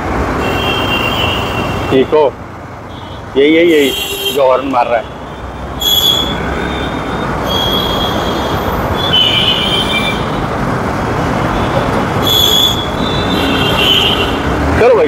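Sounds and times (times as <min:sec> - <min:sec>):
motorcycle engine and road noise: 0:00.0 - 0:15.0
high-pitched squeals: 0:05.7 - 0:10.3, 0:12.2 - 0:13.8.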